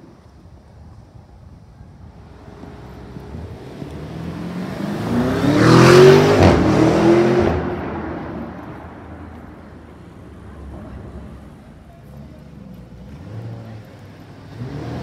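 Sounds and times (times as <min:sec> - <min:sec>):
car engine accelerating hard: 0:02.3 - 0:09.7, 0:13.0 - 0:15.0.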